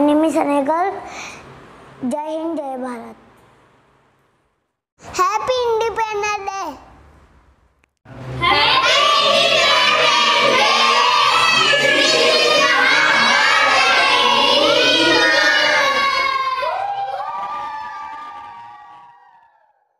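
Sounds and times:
children shouting and cheering: 0:08.4 - 0:19.7.

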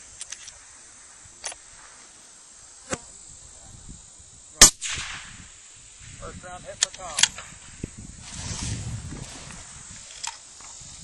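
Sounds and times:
insects buzzing: 0:00.0 - 0:11.0
rifle shot: 0:04.6 - 0:05.5.

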